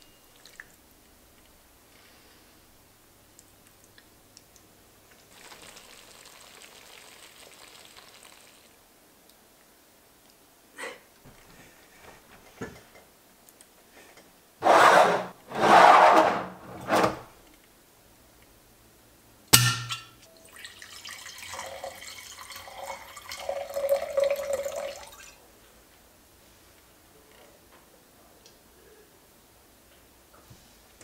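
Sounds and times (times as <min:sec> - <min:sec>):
loud rustling and scraping: 0:14.6 - 0:17.4
wine gurgling into a glass: 0:20.5 - 0:25.3.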